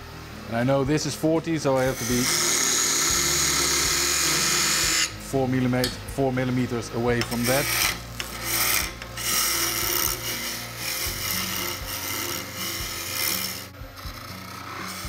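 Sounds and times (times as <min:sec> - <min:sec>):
lathe motor hum: 0:00.0 - 0:15.0
hiss of wood shavings cutting: 0:00.6 - 0:05.2, 0:06.2 - 0:15.0.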